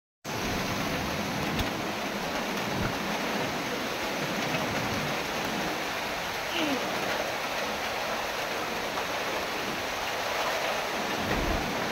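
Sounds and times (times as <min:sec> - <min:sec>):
heavy rain: 0:00.2 - 0:11.9
wind buffeting microphone: 0:09.6 - 0:11.9.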